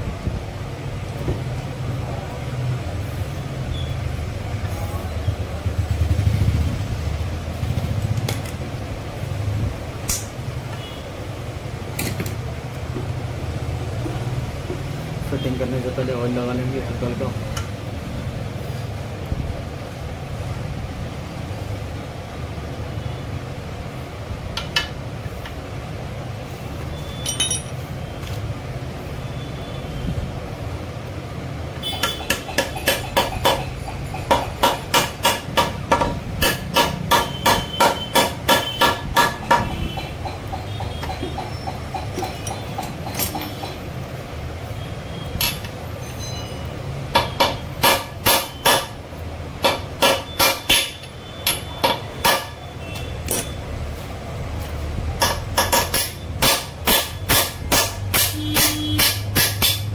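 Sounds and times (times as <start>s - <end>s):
hammer tapping on metal: 31.8s - 44.0s, 47.1s - 49.0s, 49.6s - 52.6s, 55.2s - 59.9s.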